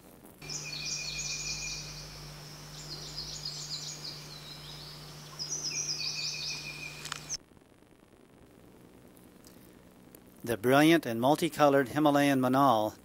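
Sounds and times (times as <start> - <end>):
low steady hum: 0.3 - 11.2
birds chirping: 0.4 - 7.4.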